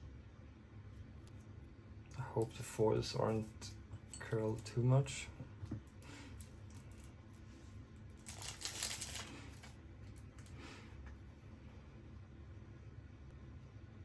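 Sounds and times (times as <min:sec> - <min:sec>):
plastic wrapping crinkling: 0:08.1 - 0:10.5.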